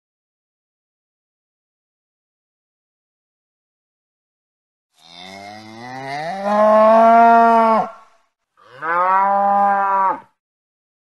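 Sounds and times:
cow mooing: 0:05.0 - 0:08.0, 0:08.6 - 0:10.3.

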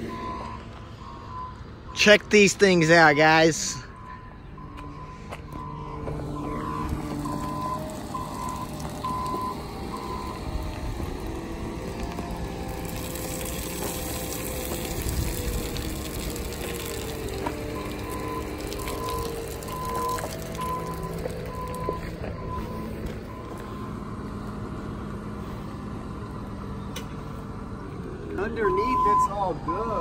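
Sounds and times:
reversing alarm beeping: 0:00.0 - 0:10.6, 0:17.4 - 0:24.5, 0:28.5 - 0:30.0
vehicle engine rumbling: 0:00.0 - 0:30.0.

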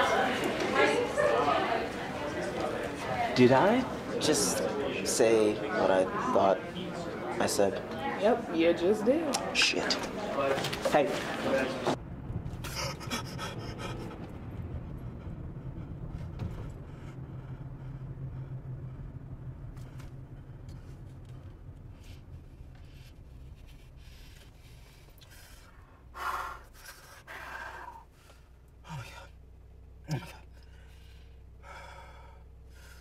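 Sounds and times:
car rumble from inside cabin: 0:12.0 - 0:26.2.

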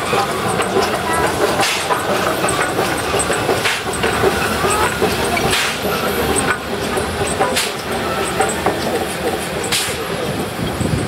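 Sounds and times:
locomotive rumbling: 0:00.0 - 0:11.0
steam exhaust puffs hissing: 0:00.0 - 0:11.0.

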